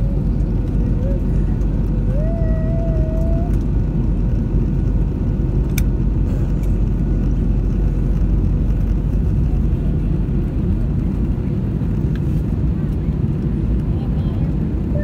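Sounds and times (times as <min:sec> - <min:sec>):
airplane cabin roar: 0:00.0 - 0:15.0.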